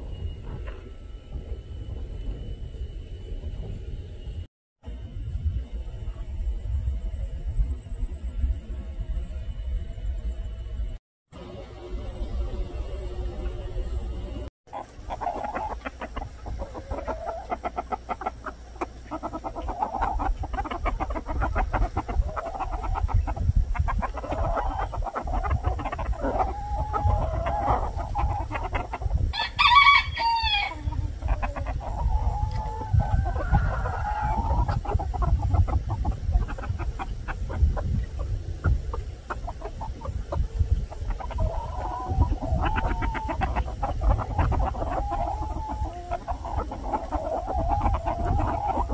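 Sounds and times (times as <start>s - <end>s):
chickens clucking: 11.4s - 48.9s
rooster crowing: 29.3s - 30.9s.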